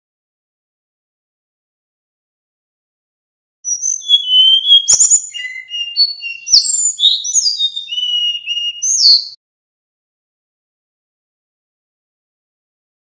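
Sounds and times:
bird singing whistled notes: 3.7 - 9.4.

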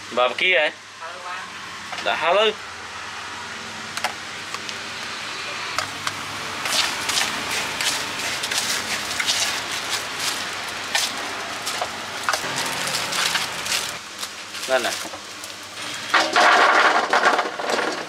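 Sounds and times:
plastic bag crinkling: 6.6 - 15.8.

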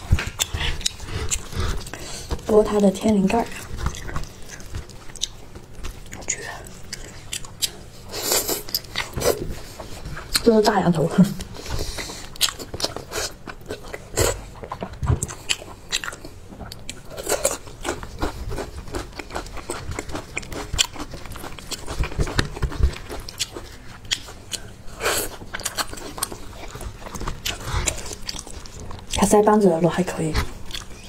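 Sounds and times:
chewing: 0.0 - 29.3, 30.3 - 31.0.

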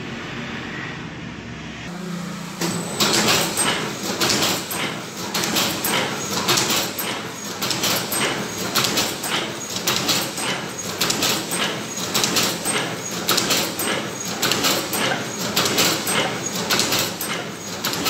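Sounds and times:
machine motor hum: 1.6 - 18.0
fast mechanical clatter: 2.6 - 18.0.

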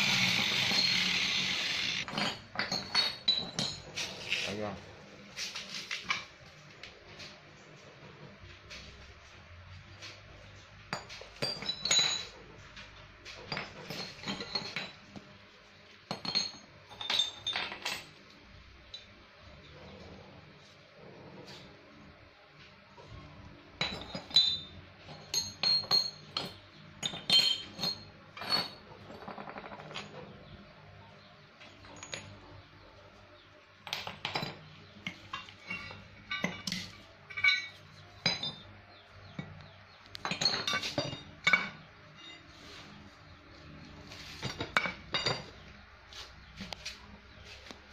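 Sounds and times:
steel plates clinking: 23.8 - 28.9, 34.4 - 39.6.

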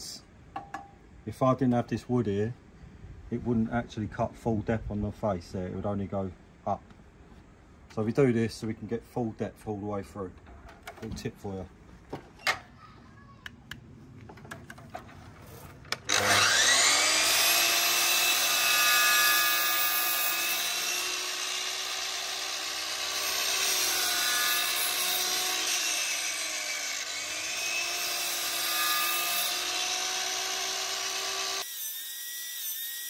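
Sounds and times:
mitre saw whining: 15.5 - 33.0
saw blade cutting board: 15.5 - 33.0.

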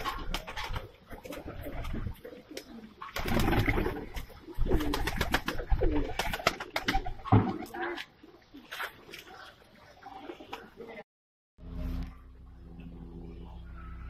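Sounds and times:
pigeons cooing: 0.0 - 10.9.

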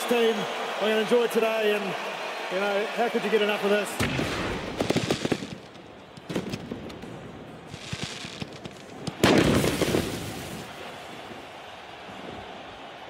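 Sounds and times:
pyrotechnics crackling pops: 4.0 - 7.0, 7.7 - 10.7.

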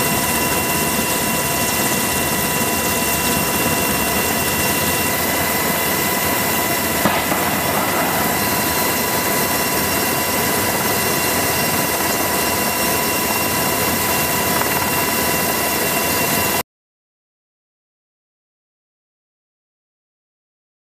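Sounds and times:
helicopter flying close by: 0.0 - 16.6.

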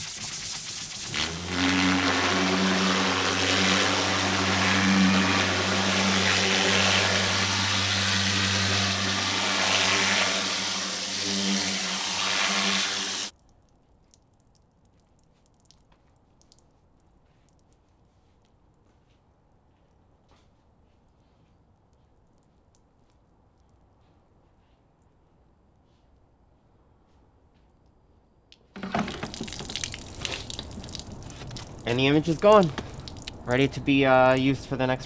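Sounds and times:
water jet hissing: 0.0 - 13.3, 28.8 - 34.3
pressure washer running: 0.8 - 13.3, 28.8 - 33.0.

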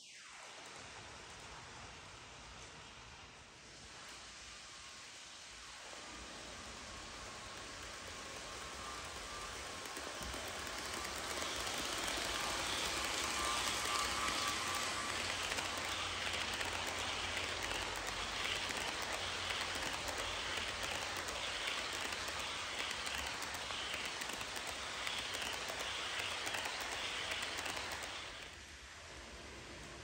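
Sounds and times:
model train wheels rattling on rails: 5.8 - 28.7.

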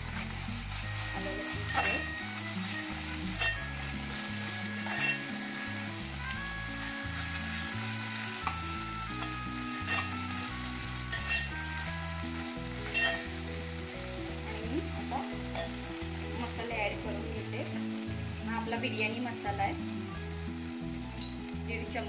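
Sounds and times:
food sizzling in hot oil: 0.0 - 22.0
metal spatula scraping a pot: 1.5 - 5.6, 9.2 - 10.5, 11.1 - 11.7, 12.8 - 13.4, 15.5 - 15.9.

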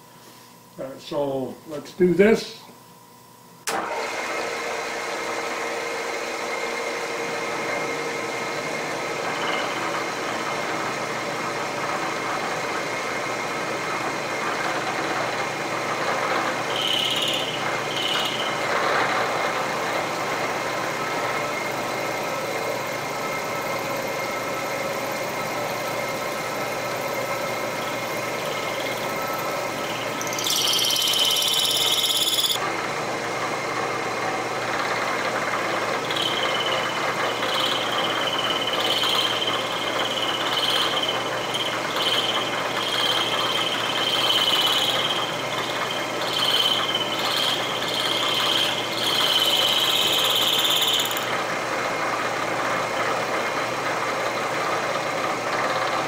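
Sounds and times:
milling machine spindle running: 5.0 - 56.0
high-pitched cutter squeals: 9.2 - 10.1, 16.1 - 19.5, 27.8 - 32.6, 35.9 - 51.4.

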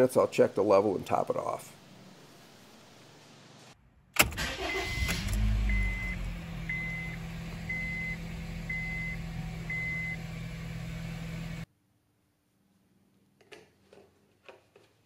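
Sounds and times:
car engine starting and idling: 3.8 - 11.7
dashboard warning beeps: 4.6 - 10.2.

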